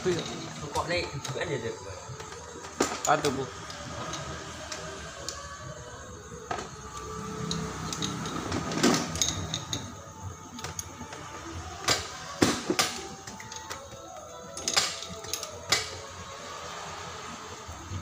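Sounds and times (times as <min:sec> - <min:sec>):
spanner metallic clicks: 0:06.9 - 0:11.1, 0:12.7 - 0:16.0.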